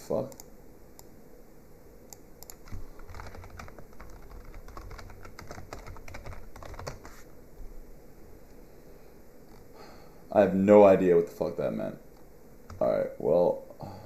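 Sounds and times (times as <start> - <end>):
computer keyboard typing: 2.4 - 7.2.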